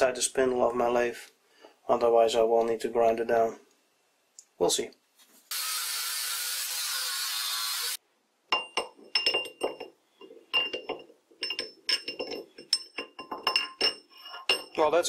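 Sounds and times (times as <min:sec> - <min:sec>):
grinder cutting steel: 0:05.5 - 0:08.0
metal rod clinking in lathe chuck: 0:08.6 - 0:14.9.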